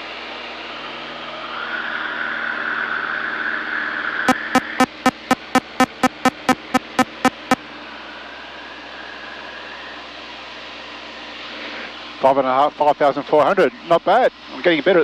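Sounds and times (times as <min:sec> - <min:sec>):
aircraft engine and airflow noise: 0:00.0 - 0:04.3, 0:07.6 - 0:15.0
cockpit warning beeping: 0:04.3 - 0:07.6.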